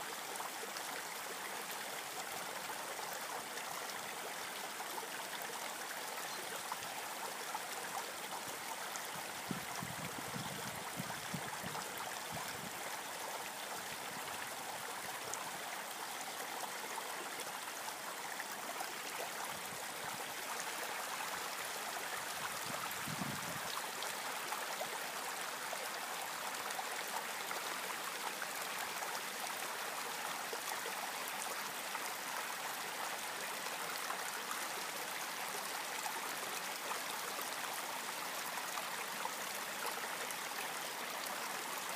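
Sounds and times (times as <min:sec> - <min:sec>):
creek running over stones: 0:00.0 - 0:41.9
wind buffeting microphone: 0:22.6 - 0:23.6.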